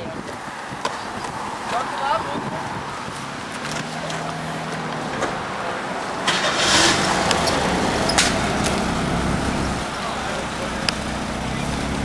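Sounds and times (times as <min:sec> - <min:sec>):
noisy rush: 0:00.0 - 0:12.0
car driving past: 0:02.7 - 0:12.0.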